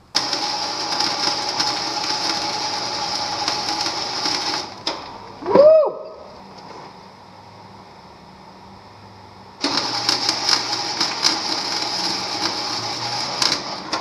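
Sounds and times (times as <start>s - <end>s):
arc welder crackling: 0.0s - 5.5s, 9.6s - 14.0s.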